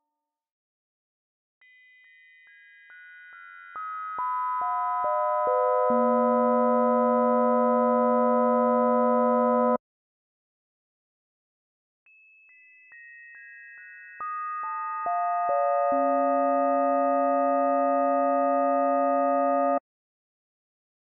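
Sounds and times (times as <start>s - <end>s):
synthesized bell overtone chord: 4.2s - 9.8s, 14.2s - 19.8s.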